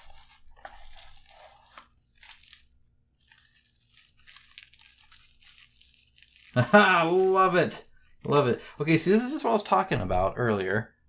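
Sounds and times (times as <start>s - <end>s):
packaging crinkling: 0.0s - 8.4s.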